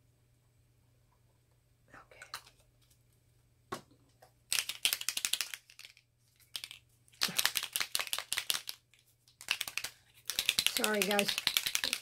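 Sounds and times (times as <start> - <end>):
small bottle rattling when shaken: 4.5 - 12.0.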